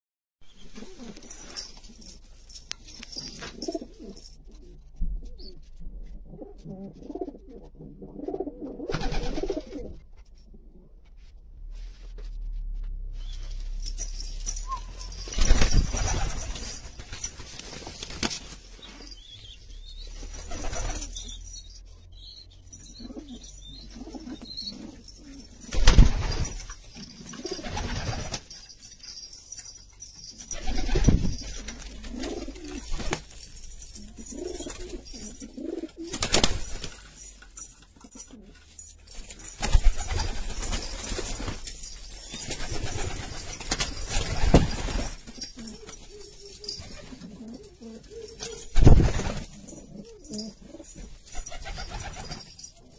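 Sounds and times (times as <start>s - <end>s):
pigeons cooing: 30.6s - 32.9s, 33.9s - 36.5s, 45.3s - 48.8s.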